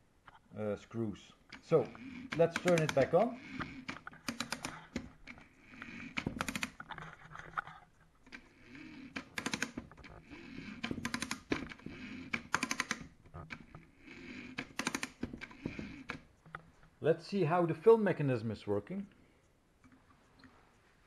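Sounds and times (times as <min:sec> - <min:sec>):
spring motor winding clicks: 0:01.5 - 0:07.6, 0:08.2 - 0:16.5.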